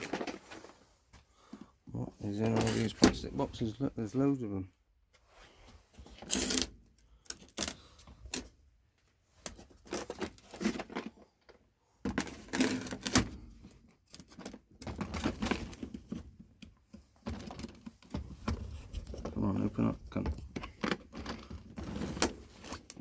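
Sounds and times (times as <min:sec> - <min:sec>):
plastic boxes clicking and rattling: 0:00.0 - 0:00.8, 0:09.4 - 0:23.0.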